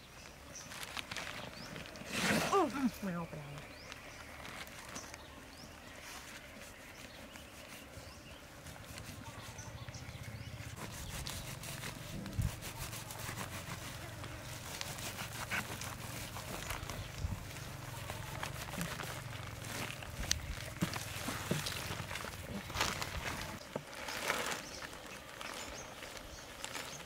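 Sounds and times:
plastic rustling: 0.0s - 27.0s
gloved hands rubbing: 6.1s - 23.6s
knife cutting and scraping: 10.8s - 16.8s.

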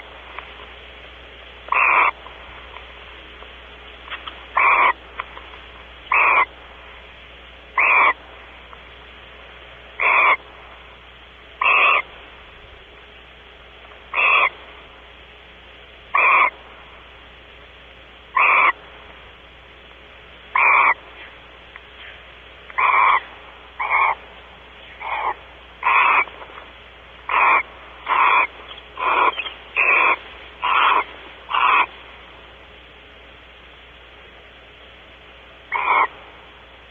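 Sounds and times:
barn owl hissing calls: 1.6s - 3.3s, 4.4s - 8.7s, 9.9s - 12.5s, 14.1s - 15.0s, 16.1s - 17.2s, 18.3s - 19.3s, 20.4s - 32.6s, 35.6s - 36.8s.

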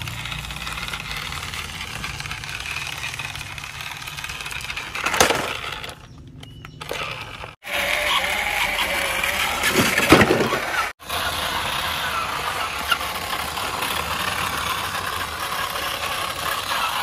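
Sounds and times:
toy trucks scraping over dirt: 0.0s - 17.0s
loud plastic clatter: 4.4s - 6.1s, 9.6s - 10.9s.

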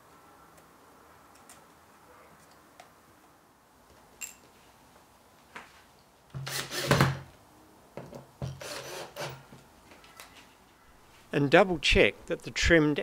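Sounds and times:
cordless drill driving a screw: 6.4s - 7.2s, 8.6s - 9.4s.

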